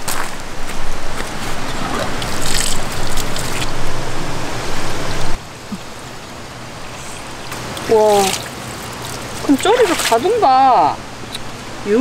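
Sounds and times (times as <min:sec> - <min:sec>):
footsteps on gravel: 0:00.0 - 0:03.7.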